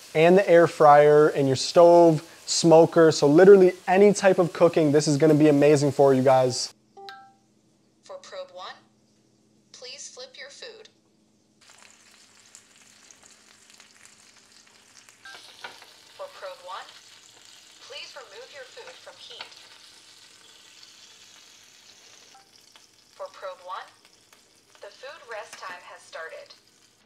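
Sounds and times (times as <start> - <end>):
burger patty sizzling in pan: 0.0 - 6.8, 11.3 - 27.0.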